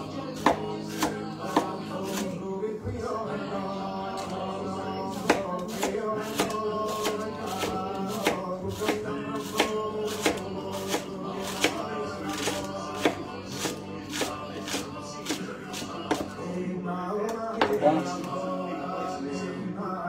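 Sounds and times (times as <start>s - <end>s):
background music: 0.0s - 20.0s
knife slicing onto cutting board: 5.1s - 16.3s.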